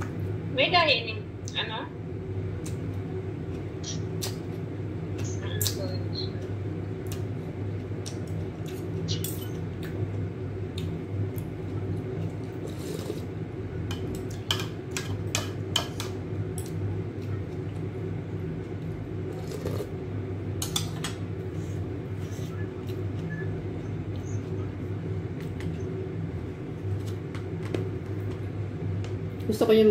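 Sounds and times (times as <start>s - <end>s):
steady low hum: 0.0s - 29.9s
person slurping noodle soup: 12.6s - 13.3s, 19.3s - 20.0s.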